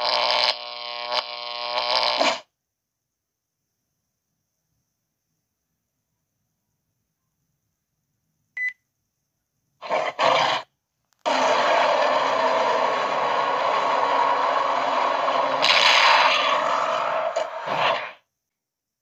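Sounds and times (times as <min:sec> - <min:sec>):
giant ape roar: 0:09.8 - 0:18.2.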